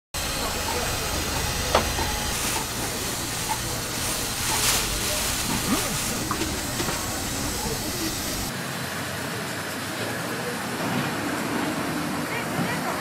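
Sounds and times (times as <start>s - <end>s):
market background hiss: 0.2s - 8.6s.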